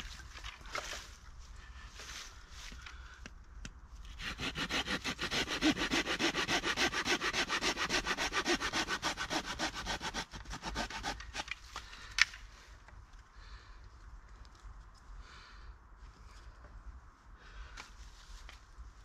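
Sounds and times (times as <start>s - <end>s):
hand saw cutting branch: 4.0s - 11.7s.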